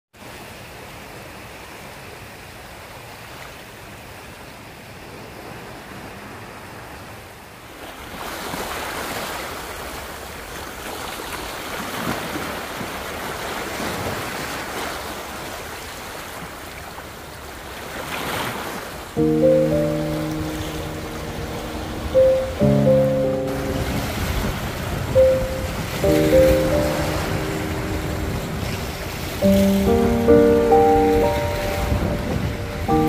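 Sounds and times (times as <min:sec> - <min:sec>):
small waves breaking on rocks: 0:07.7 - 0:19.2.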